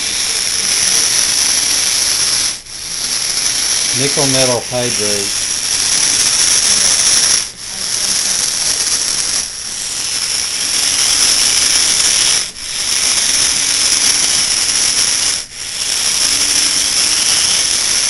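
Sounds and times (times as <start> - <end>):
small gear motors whirring: 0.0 - 18.0.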